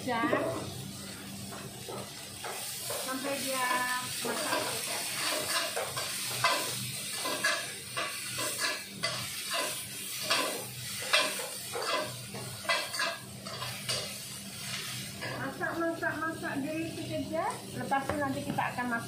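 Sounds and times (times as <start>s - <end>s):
vegetables sizzling in oil: 0.0s - 19.0s
metal spatula scraping a wok: 3.7s - 15.4s.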